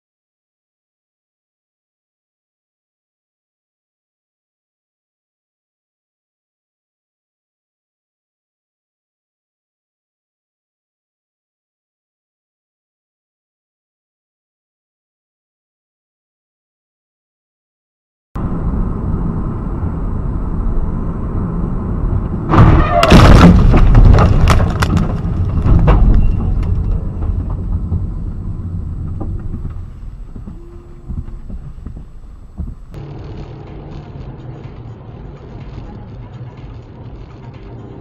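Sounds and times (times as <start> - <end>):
car road noise: 18.4 - 38.0
loud crash: 22.5 - 29.5
debris clattering: 22.5 - 30.3.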